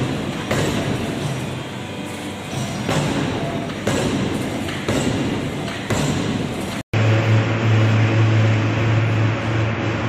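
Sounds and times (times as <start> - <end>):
forging hammer striking steel: 0.0 - 6.8
industrial lathe humming: 7.0 - 10.0.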